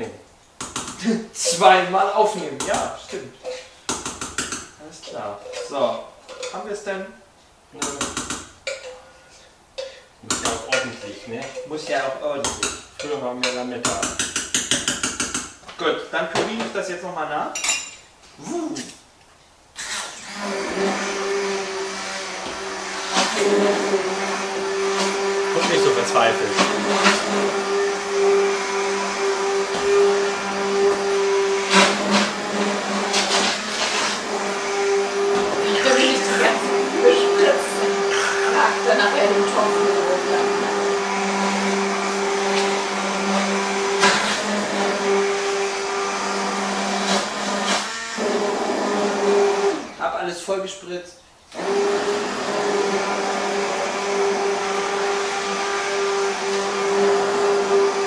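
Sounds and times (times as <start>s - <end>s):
immersion blender running: 19.8s - 50.2s, 51.5s - 58.0s.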